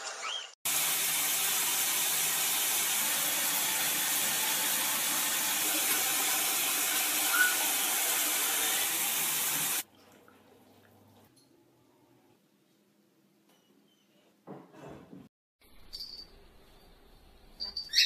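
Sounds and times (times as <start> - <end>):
shower spray hissing: 0.7 - 9.8.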